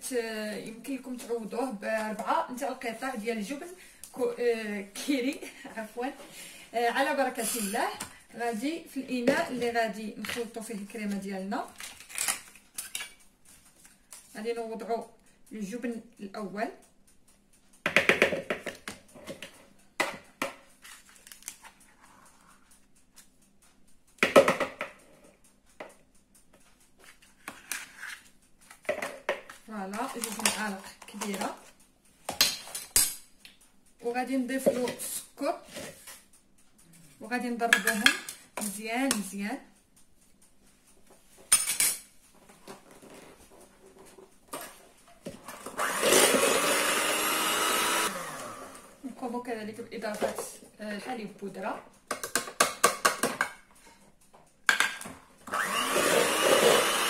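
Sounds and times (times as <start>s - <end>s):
spoon knocking and scraping bowl: 17.8s - 20.6s, 27.0s - 31.4s, 34.6s - 35.1s, 37.7s - 39.3s
electric hand mixer whisking: 45.6s - 49.0s, 55.4s - 57.0s.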